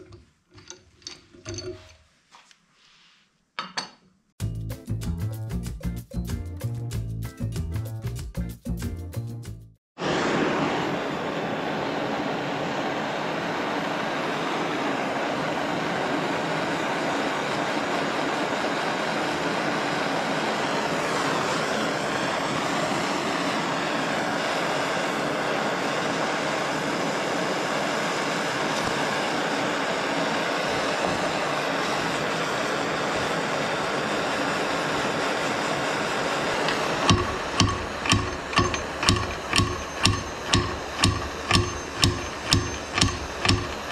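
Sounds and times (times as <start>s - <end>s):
gas torch hissing: 10.0s - 43.9s.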